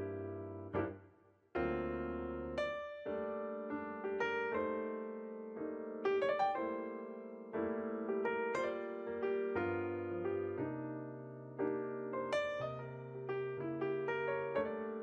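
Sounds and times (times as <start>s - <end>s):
piano music: 0.0s - 1.0s, 1.6s - 15.0s.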